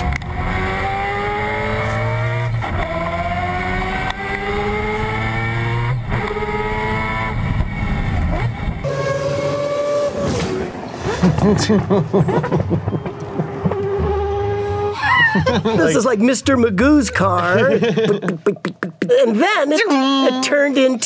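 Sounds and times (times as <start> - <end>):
rotary engine revving: 0.0 - 12.0, 12.8 - 15.0.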